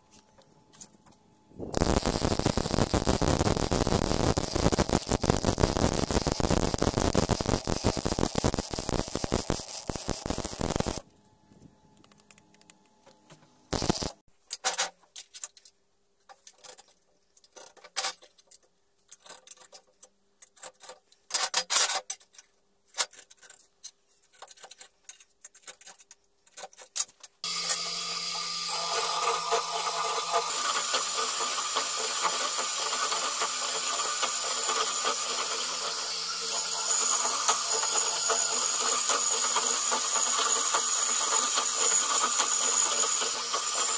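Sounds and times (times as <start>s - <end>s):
welding arc crackling: 1.7s - 11.0s, 13.7s - 14.2s, 28.7s - 43.9s
drill press cutting steel: 1.8s - 11.0s, 13.8s - 14.2s, 27.5s - 43.9s.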